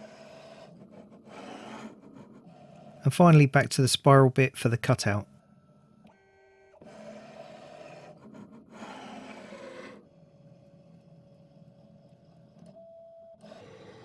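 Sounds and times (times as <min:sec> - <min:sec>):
mill motors mechanical noise: 0:00.0 - 0:03.0, 0:05.5 - 0:14.0.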